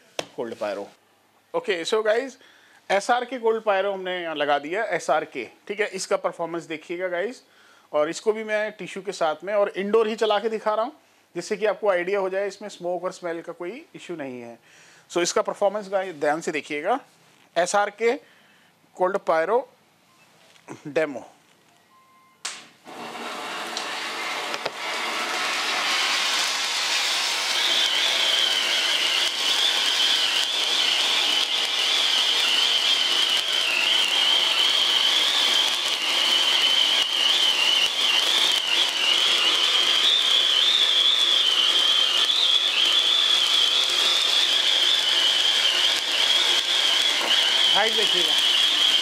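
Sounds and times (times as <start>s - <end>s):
spark fountain spraying hiss: 22.8s - 49.0s
high whistle-like tone: 25.8s - 49.0s.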